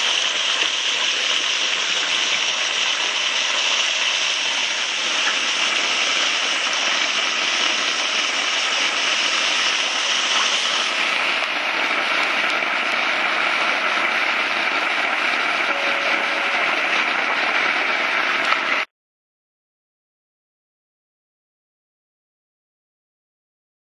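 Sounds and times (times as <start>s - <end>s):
churning splashing water: 0.0s - 18.9s.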